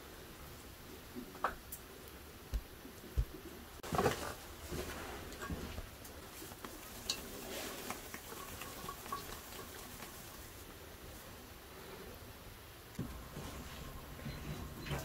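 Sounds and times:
hands rustling sticky mixture: 6.2s - 10.8s.

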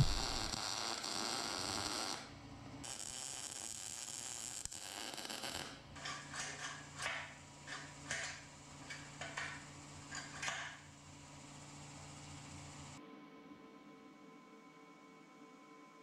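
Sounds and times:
steady low hum: 0.0s - 0.6s.

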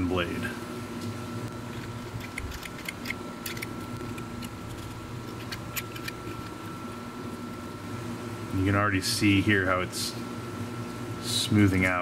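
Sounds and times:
air conditioner whirring: 0.0s - 12.0s
knife scraping plastic: 1.6s - 6.5s.

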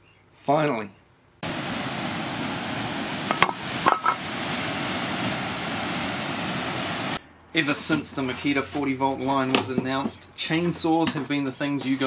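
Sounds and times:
waterfall rushing: 1.4s - 7.2s.

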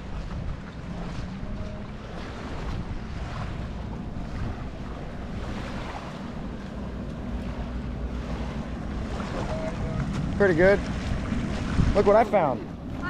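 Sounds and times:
wind noise on microphone: 0.0s - 6.1s, 9.9s - 13.0s
small waves washing on sand: 0.0s - 13.0s.

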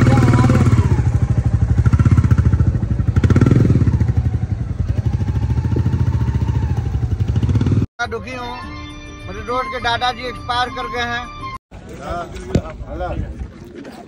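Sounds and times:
motorcycle engine running: 0.0s - 7.9s.

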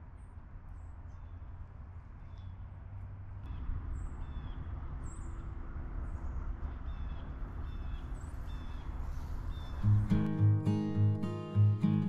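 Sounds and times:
songbird call notes: 6.7s - 12.0s.

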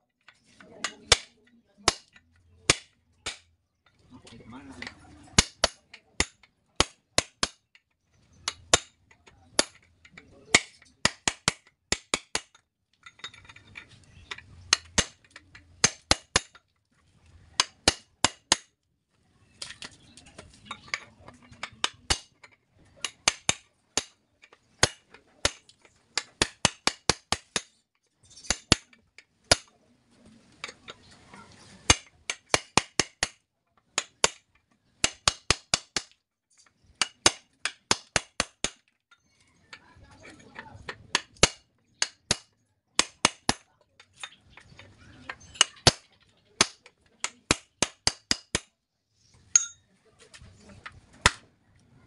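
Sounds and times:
hammer striking steel punch: 49.5s - 49.8s.

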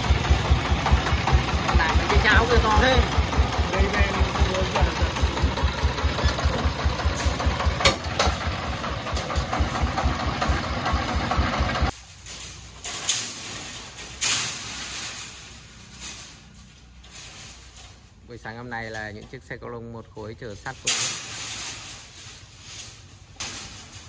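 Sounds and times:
diesel engine running: 0.0s - 18.3s.

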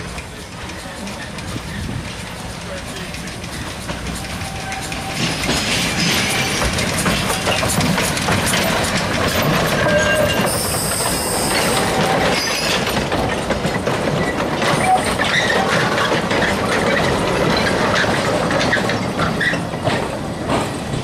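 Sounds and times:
steam train passing: 0.0s - 21.0s
wheels clicking over rail joints: 0.0s - 21.0s
high wheel squeal: 3.5s - 12.9s, 14.2s - 17.0s.

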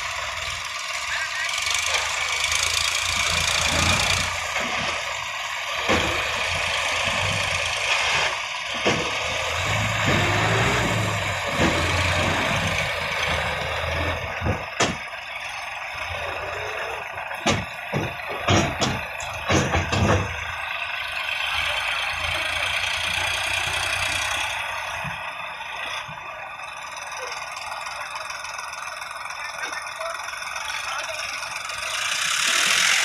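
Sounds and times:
diesel tractor engines idling: 0.0s - 33.0s
sharp metal clanks: 17.3s - 20.5s.

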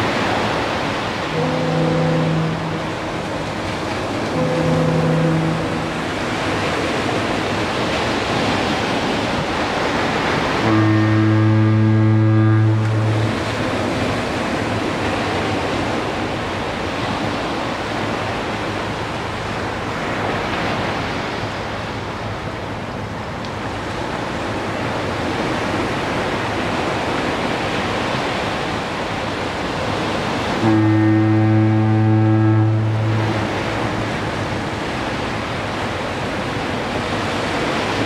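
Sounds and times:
low foghorn blast: 0.0s - 21.2s, 29.8s - 38.0s
surf breaking on a beach: 0.0s - 38.0s.

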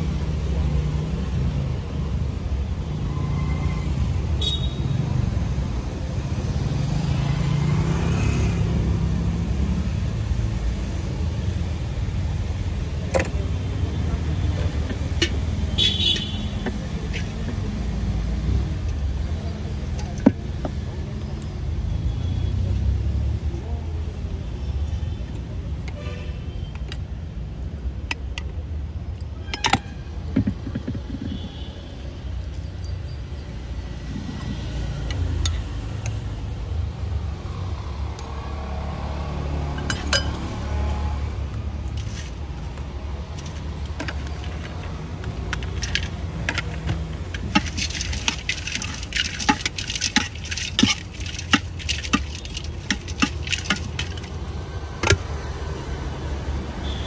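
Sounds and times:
road traffic rumble: 0.0s - 57.0s
spoon clinking in a steel bowl: 39.8s - 40.6s, 47.3s - 54.3s.

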